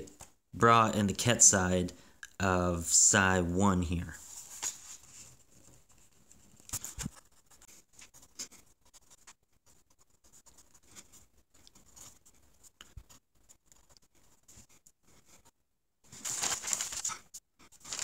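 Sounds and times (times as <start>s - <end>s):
hand brushing across paper: 4.2s - 15.4s
pencil scratching on paper: 5.0s - 15.6s.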